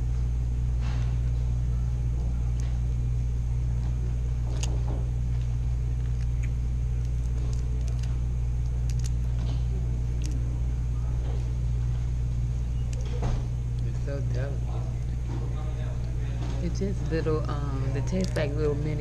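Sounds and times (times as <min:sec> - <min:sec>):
steady low rumble: 0:00.0 - 0:19.0
shell cracking while peeled: 0:05.4 - 0:10.5.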